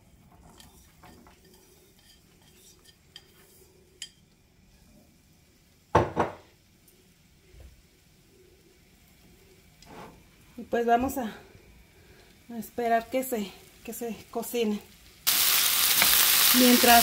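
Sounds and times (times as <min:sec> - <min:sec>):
potatoes poured into a pan: 0:15.3 - 0:17.0.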